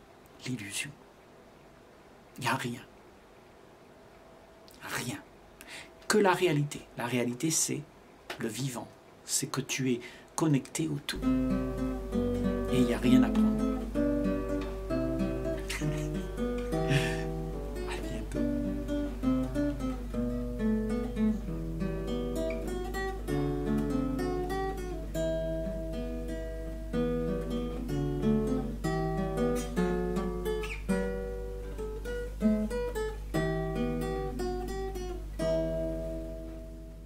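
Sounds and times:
acoustic guitar melody: 11.1 - 37.0.

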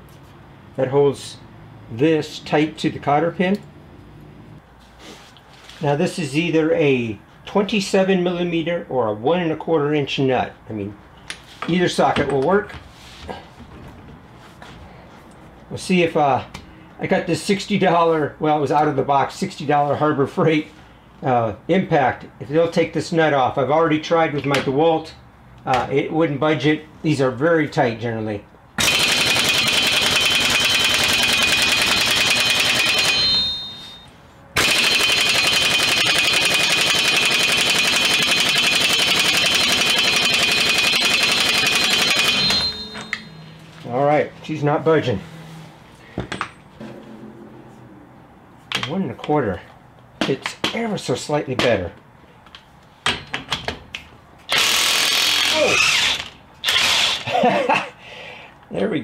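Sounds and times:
impact wrench hammering: 28.8 - 43.5, 54.5 - 57.2.

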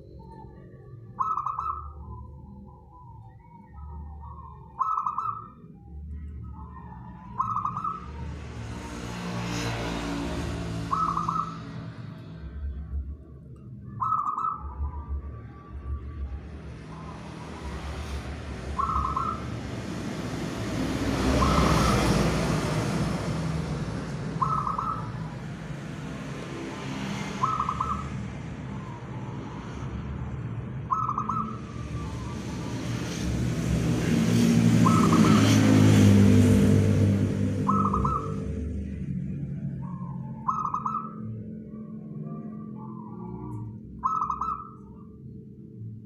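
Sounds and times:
dove cooing: 3.8 - 5.4, 10.8 - 11.8, 17.0 - 19.8, 20.6 - 25.5, 27.2 - 28.2, 30.9 - 32.7, 37.6 - 38.6, 42.8 - 44.8.

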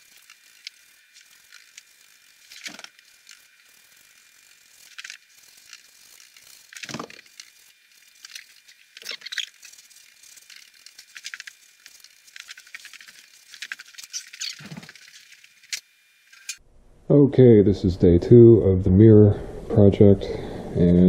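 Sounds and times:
short squeaks: 8.3 - 9.9, 12.8 - 16.6.

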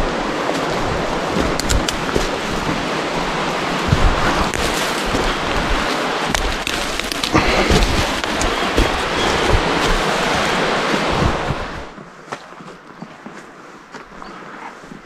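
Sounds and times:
steady rushing noise: 0.0 - 12.0
footsteps through undergrowth: 1.3 - 13.6.

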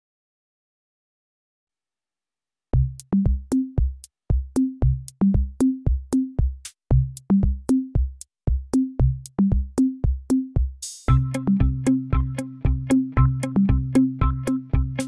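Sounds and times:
kick drum thumps: 2.8 - 15.0
low bass notes: 11.1 - 15.0.

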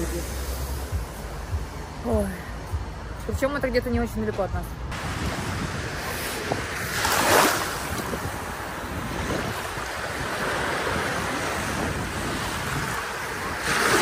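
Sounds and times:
wind on microphone: 4.5 - 14.0
surf washing onto beach: 5.0 - 14.0
wave breaking: 5.0 - 14.0.

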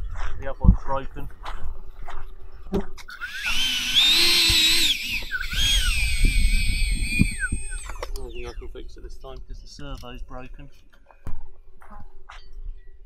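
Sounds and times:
electric fan motor whine: 3.1 - 8.0.

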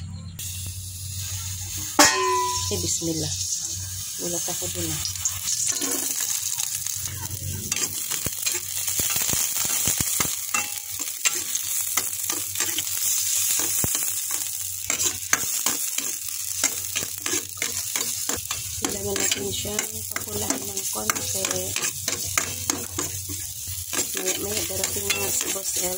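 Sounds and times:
food sizzling in hot oil: 0.4 - 25.9
utensil scraping metal pot: 7.4 - 25.9.

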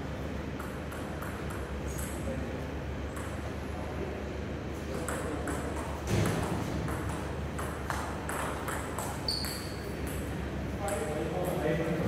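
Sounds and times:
table tennis ball clicking: 6.4 - 10.2
short high squeak: 9.2 - 9.9.

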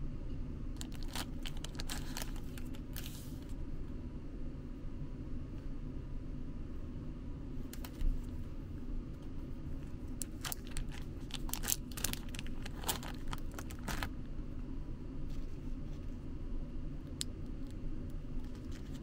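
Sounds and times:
plastic wrapper crinkling: 0.8 - 3.2, 10.2 - 14.1.

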